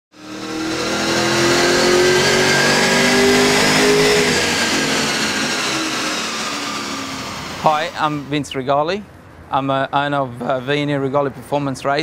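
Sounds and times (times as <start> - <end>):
car engine under load: 0.1 - 8.8.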